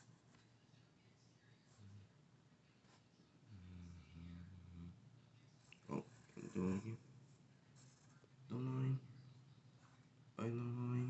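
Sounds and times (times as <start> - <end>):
pencil strokes on paper: 5.6 - 8.3.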